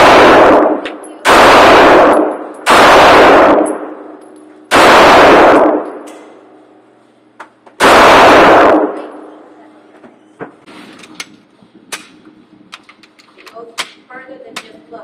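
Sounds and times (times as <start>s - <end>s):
pistol shots echoing indoors: 0.0s - 6.8s, 7.8s - 9.6s.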